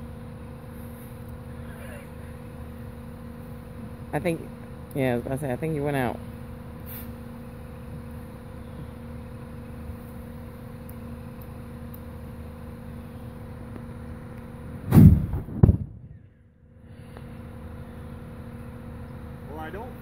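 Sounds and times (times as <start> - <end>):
steady low hum: 0.0 - 20.0
deep blast of fire igniting: 6.8 - 7.2, 14.8 - 16.2
short bang: 14.9 - 16.2.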